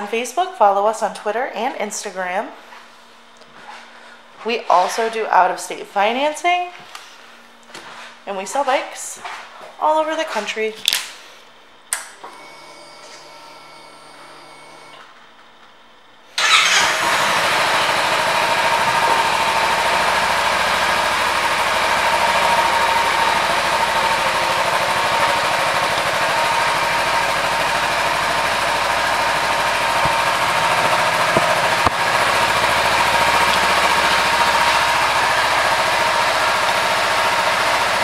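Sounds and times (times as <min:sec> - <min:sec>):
motorcycle engine starting and idling: 0:16.4 - 0:38.0.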